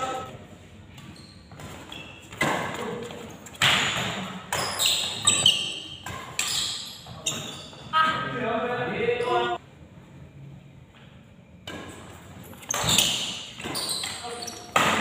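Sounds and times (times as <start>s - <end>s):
shoes squeaking on court: 0.0s - 8.3s, 11.6s - 15.0s
rackets hitting shuttlecock: 1.6s - 6.8s, 11.6s - 15.0s.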